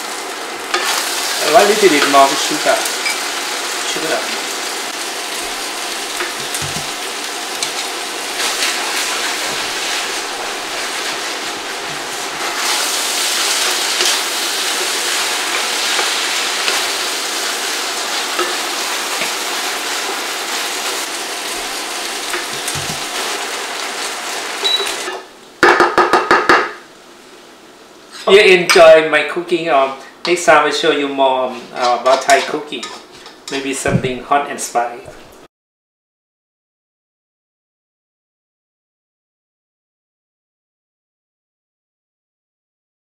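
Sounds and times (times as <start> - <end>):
noodles sizzling in skillet: 0.0 - 28.4
spatula knocking against pan: 25.6 - 26.8.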